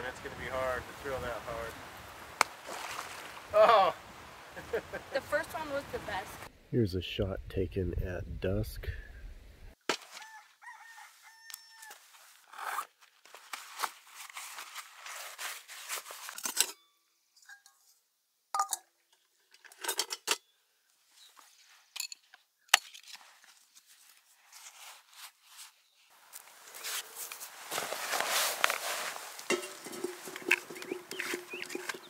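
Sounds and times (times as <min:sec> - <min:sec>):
rustling: 0:11.8 - 0:16.8, 0:22.8 - 0:32.0
metal clinks of cook pot: 0:18.6 - 0:18.9, 0:29.5 - 0:32.0
bird calling: 0:29.6 - 0:32.0.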